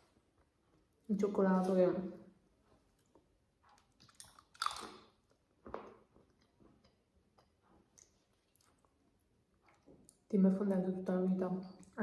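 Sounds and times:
faint chewing: 2.7s - 10.3s.

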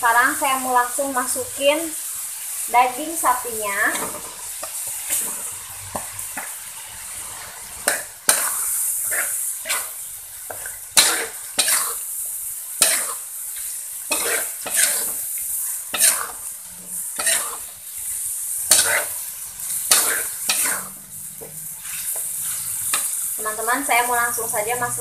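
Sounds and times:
meat sizzling in a wok: 0.0s - 25.0s
metal spoon scraping a wok: 3.9s - 6.5s, 7.7s - 12.1s, 12.8s - 23.4s.

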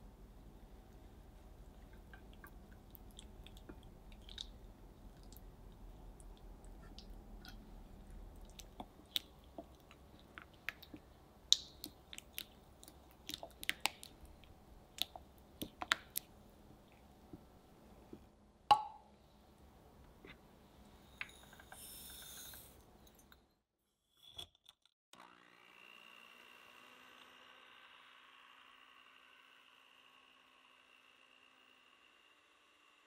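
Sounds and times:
sticky chocolate squelches: 8.2s - 16.3s.

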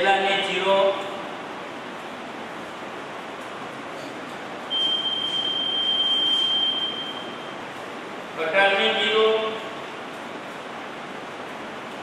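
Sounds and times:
long electronic beep: 4.7s - 7.5s.

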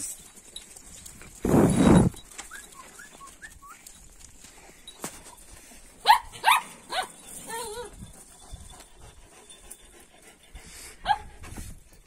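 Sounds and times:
dog barking: 6.1s - 7.1s.

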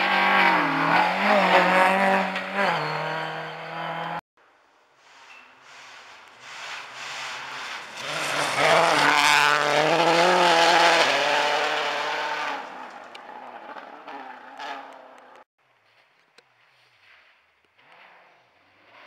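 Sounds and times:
rally car engine at full revs: 0.0s - 4.2s, 7.2s - 15.5s
tyres scrabbling on gravel: 6.2s - 9.8s.

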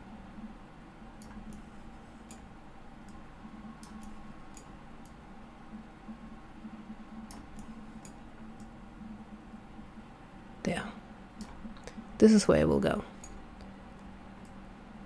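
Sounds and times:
low steady hum: 0.0s - 15.0s
computer mouse clicks: 1.2s - 3.2s, 3.8s - 5.2s, 7.2s - 8.8s, 13.2s - 14.6s.

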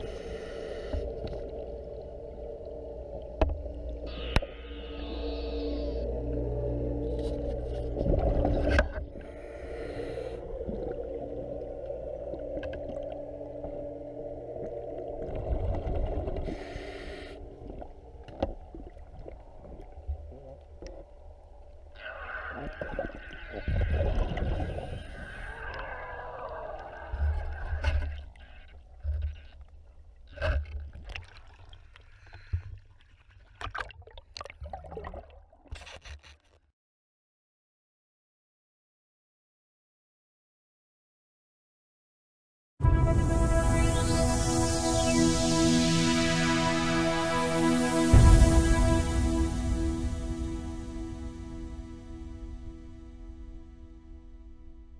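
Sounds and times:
diver regulator breathing: 0.0s - 1.6s, 4.1s - 6.1s, 9.1s - 10.7s, 16.4s - 17.6s, 32.1s - 32.8s
low rumble and droning tones: 0.0s - 30.9s, 42.8s - 54.9s
bubbles gurgling: 22.2s - 28.4s.

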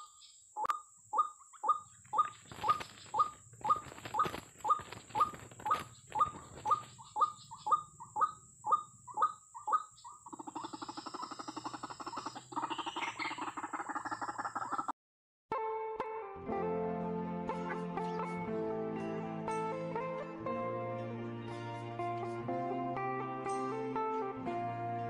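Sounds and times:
bird calling: 0.0s - 14.9s.

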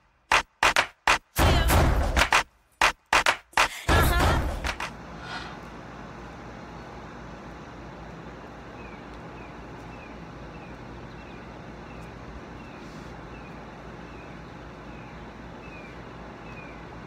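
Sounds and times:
outdoor rumble and hiss: 0.0s - 17.0s
bird chirping: 8.7s - 16.9s.

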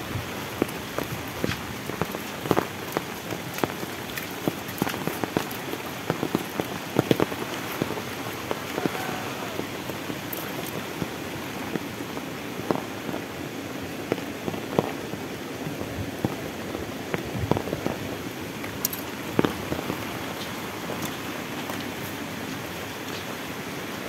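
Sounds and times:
heavy rain hissing: 0.0s - 24.0s.

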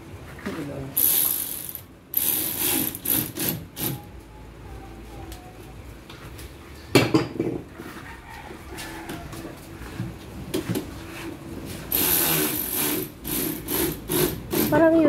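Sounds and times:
ratchet wrench clicking: 1.0s - 4.0s, 11.9s - 14.8s.

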